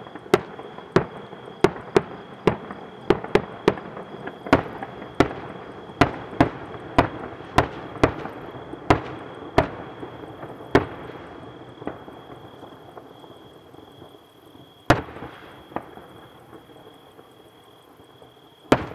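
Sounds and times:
fireworks banging: 0.0 - 12.3
fireworks crackling: 0.0 - 13.2, 14.9 - 17.3, 18.7 - 18.9.

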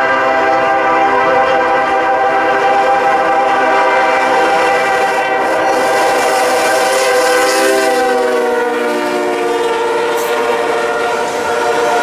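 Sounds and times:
freight cars rolling: 0.0 - 12.0
locomotive air horn: 0.0 - 12.0.

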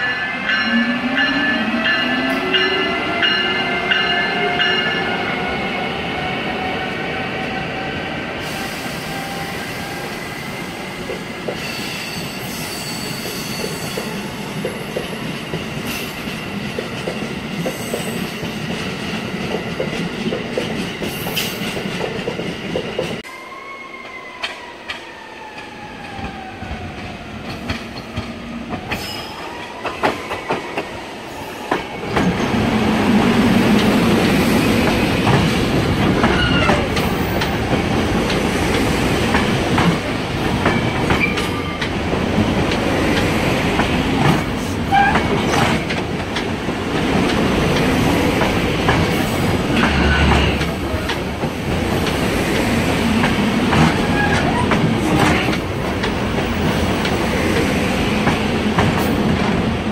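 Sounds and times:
electric train whine: 0.0 - 59.9
passenger train rolling past: 0.0 - 59.9
high wheel squeal: 11.6 - 14.1.

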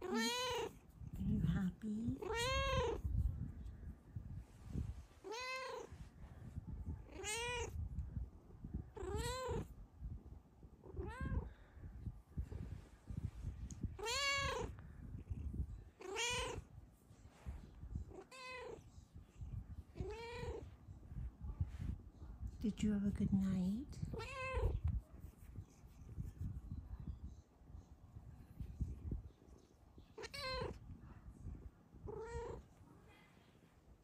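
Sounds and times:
cat meowing: 0.0 - 0.7, 2.2 - 3.0, 5.2 - 5.9, 7.1 - 7.7, 9.0 - 9.6, 14.0 - 14.8, 16.0 - 16.6, 20.0 - 20.6, 30.2 - 30.8, 32.1 - 32.6.

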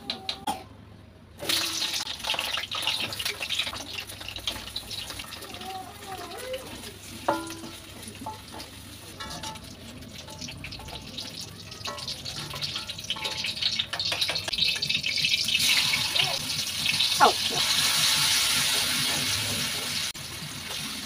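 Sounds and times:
hot oil sizzling: 1.4 - 21.0
metal utensils clinking on wok: 6.8 - 20.1.

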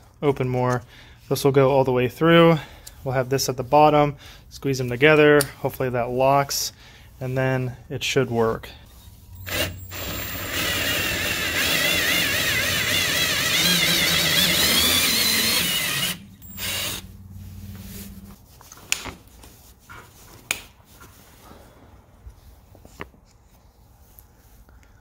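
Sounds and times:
power drill drilling: 9.4 - 17.0.

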